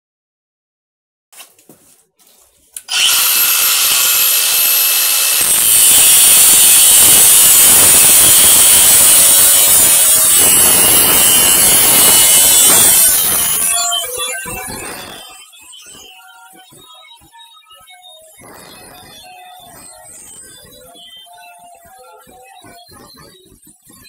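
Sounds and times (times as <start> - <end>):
angle grinder cutting steel: 2.8 - 15.4.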